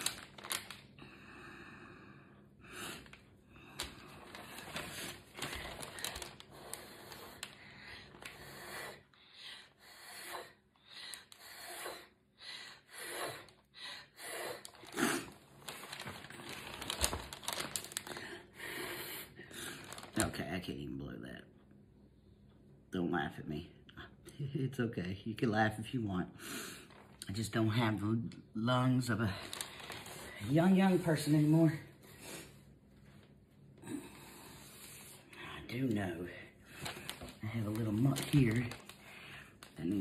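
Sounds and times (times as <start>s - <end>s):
person breathing: 0.9s - 15.4s, 16.4s - 20.1s, 33.8s - 37.4s, 38.7s - 39.8s.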